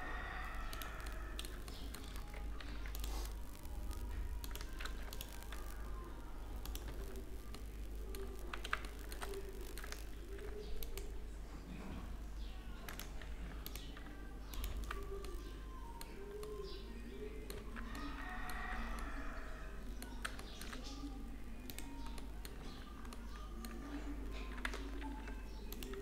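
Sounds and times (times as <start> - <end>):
keyboard keystrokes: 0.6 - 5.9, 6.6 - 11.1, 12.8 - 16.8, 19.9 - 21.0, 21.6 - 26.0.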